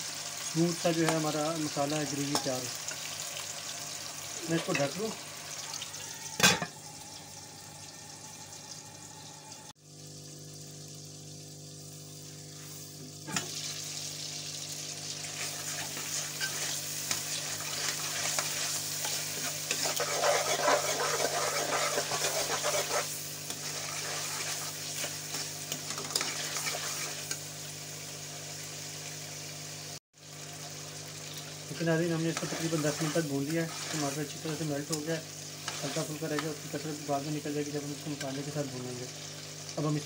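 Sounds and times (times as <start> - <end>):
food sizzling in a pan: 0.0 - 40.0
metal spoon stirring and scraping: 15.3 - 27.4, 32.2 - 35.0, 35.6 - 36.5.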